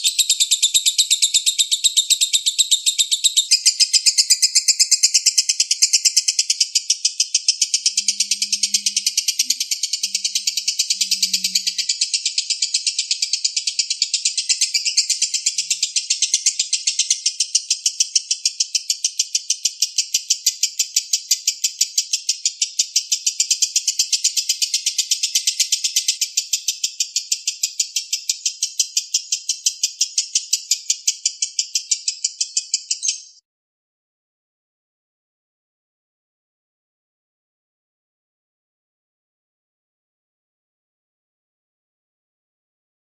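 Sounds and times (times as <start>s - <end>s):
lovebird chattering trill: 0.0s - 33.4s.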